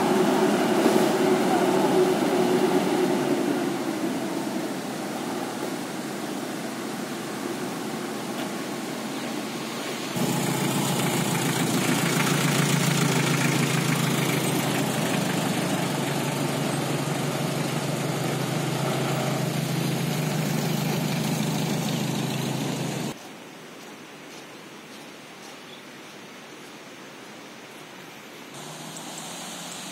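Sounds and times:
vehicle engine running: 10.2 - 23.2, 28.6 - 29.9.

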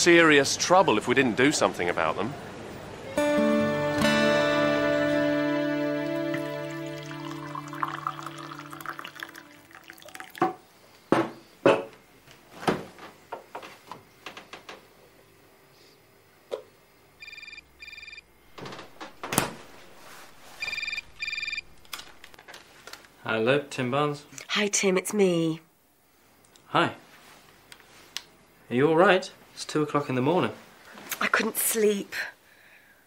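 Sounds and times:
music: 3.2 - 9.6
telephone double-pulse ring: 17.2 - 18.3, 20.6 - 21.7.

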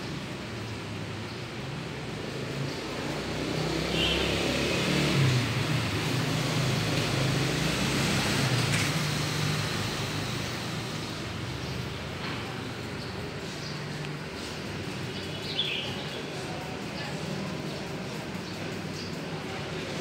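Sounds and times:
vehicle engine passing: 2.2 - 11.4.

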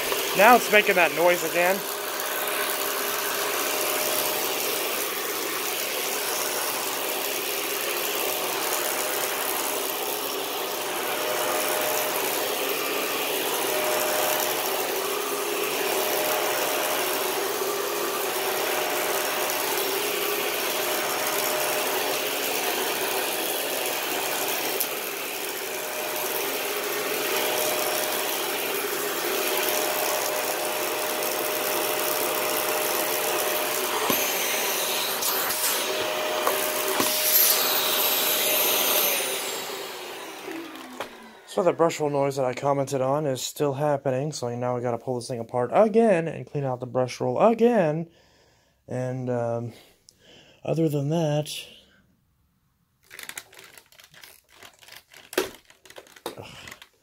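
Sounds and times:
vacuum cleaner running: 0.0 - 42.5.

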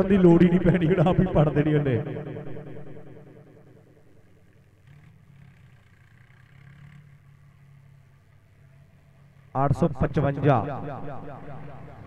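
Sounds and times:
faint tractor engine running: 4.5 - 9.6.

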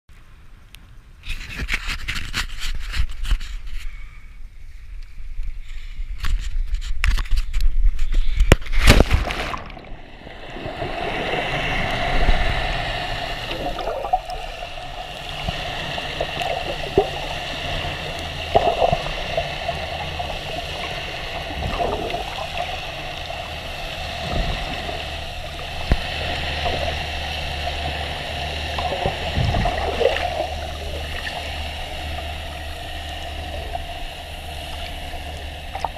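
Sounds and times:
faint clicks and gurgles: 4.9 - 35.9
splash: 8.6 - 32.4
muffled underwater hum: 9.8 - 35.9
wind buffeting camera: 29.2 - 29.9.

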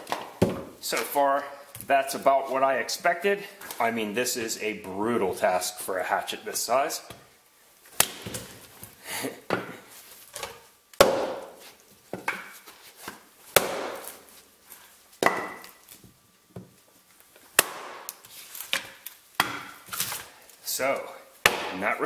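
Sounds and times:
hatchet chopping wood: 8.0 - 8.4, 11.0 - 11.6, 13.5 - 14.2, 15.2 - 15.8, 17.6 - 19.8, 21.4 - 21.9.

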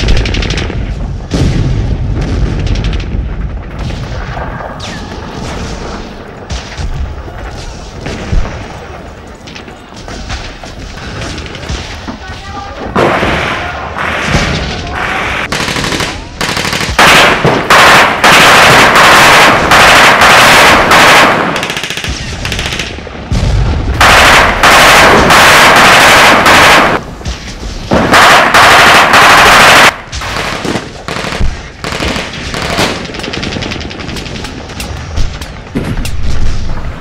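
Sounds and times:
machine guns firing bursts: 15.4 - 23.0, 24.0 - 27.0, 27.9 - 34.8.

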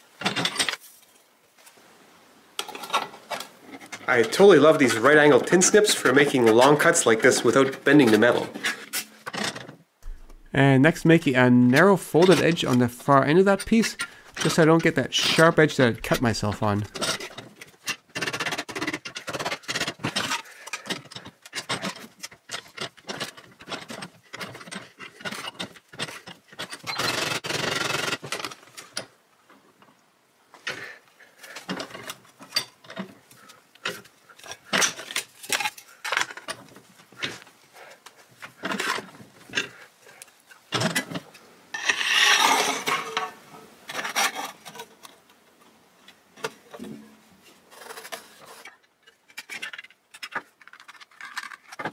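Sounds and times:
metal scraping: 2.6 - 22.0, 41.7 - 44.9.

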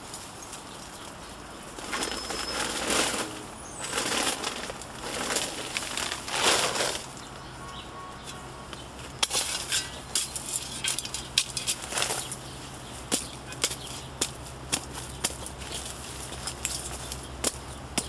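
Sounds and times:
shovel scraping into soil: 1.8 - 7.1.

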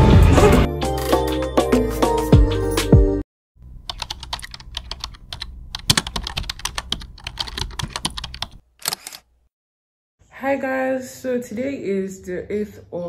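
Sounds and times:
computer keyboard typing: 3.8 - 9.0.

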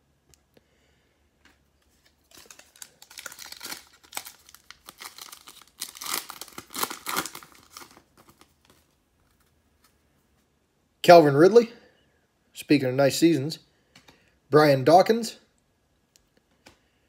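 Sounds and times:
foil wrapper tearing and crinkling: 2.1 - 8.8.

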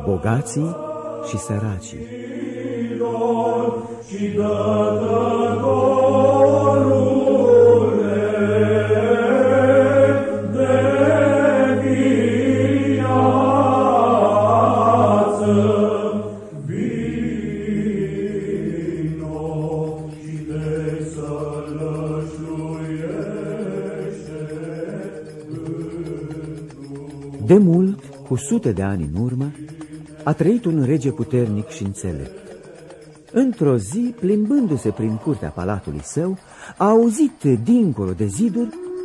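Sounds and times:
low held drone: 0.0 - 39.0
voices chanting slow melody: 0.0 - 39.0.

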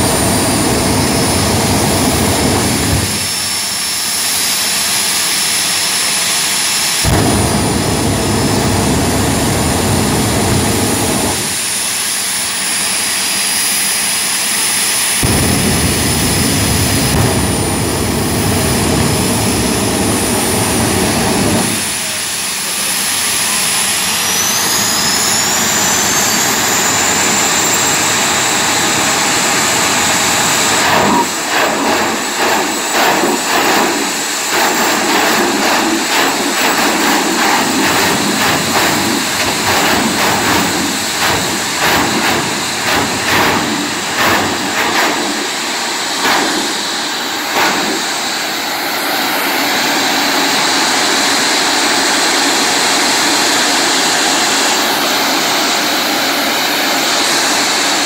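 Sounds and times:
high turbine whine: 0.0 - 58.0
afterburner blasts: 7.0 - 11.8, 15.2 - 22.3, 26.8 - 50.0.

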